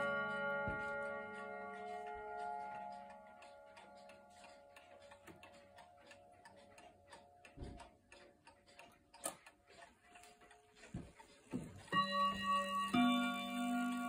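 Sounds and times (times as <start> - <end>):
clock gong ringing: 0.0 - 4.4, 11.9 - 14.0
clock ticking: 0.0 - 14.0.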